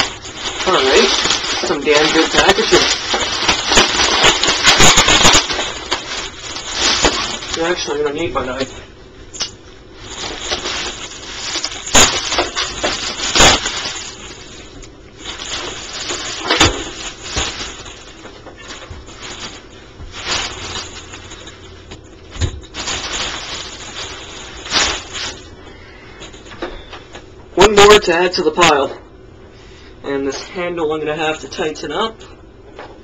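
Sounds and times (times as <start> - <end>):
sharp cracks of packaging: 0.0 - 7.7, 10.2 - 14.5, 15.2 - 19.6, 22.3 - 25.4
packaging rustling and tearing: 0.0 - 8.7, 9.4 - 25.5.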